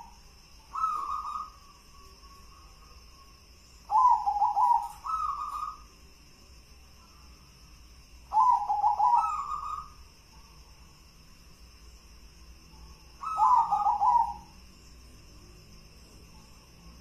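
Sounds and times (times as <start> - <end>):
dove cooing: 0.7 - 1.6, 3.9 - 5.8, 8.3 - 10.0, 13.2 - 14.5.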